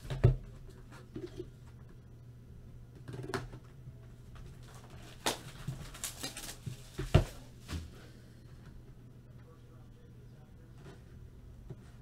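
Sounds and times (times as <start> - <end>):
card boxes rustling and clicking: 4.3 - 7.9.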